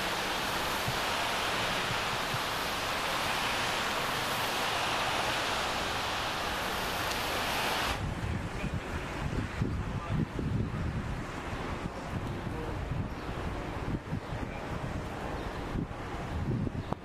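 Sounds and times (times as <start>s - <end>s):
steady hiss: 0.0s - 9.3s.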